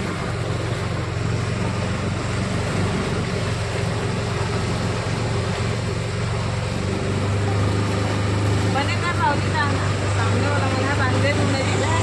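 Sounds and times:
boat motor humming: 0.0s - 12.0s.

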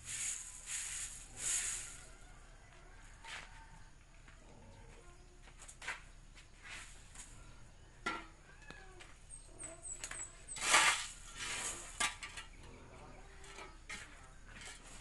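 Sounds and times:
corn kernels scraped across concrete: 0.0s - 2.1s, 10.2s - 12.6s.

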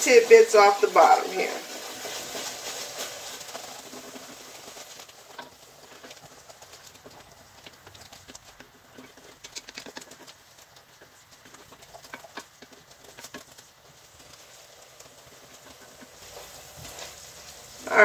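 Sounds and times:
wooden spoon scraping a pot: 0.0s - 18.0s.

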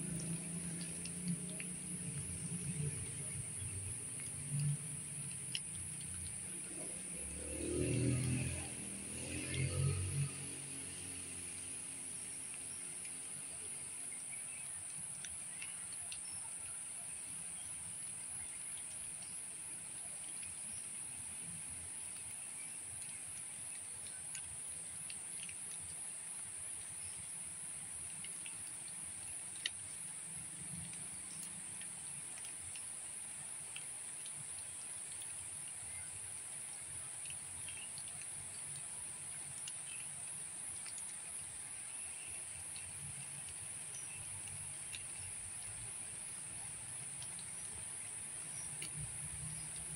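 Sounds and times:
faint low rumble: 0.0s - 10.5s
high-pitched insect chorus: 0.0s - 25.5s, 26.2s - 49.9s.

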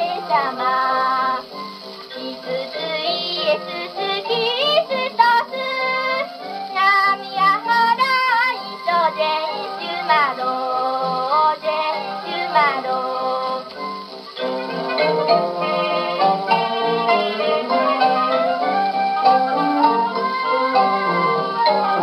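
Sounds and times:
child singing: 0.0s - 1.5s, 2.1s - 13.7s
instrumental accompaniment: 0.0s - 22.0s.

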